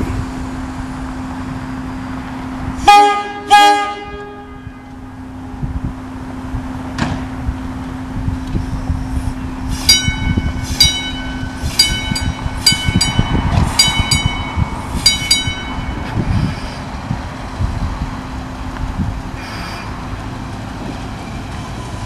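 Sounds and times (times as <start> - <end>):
electric car hum on rails: 0.0 - 22.0
wheel rumble and knocks: 5.6 - 9.1, 9.9 - 19.4
bell ringing: 9.9 - 16.1.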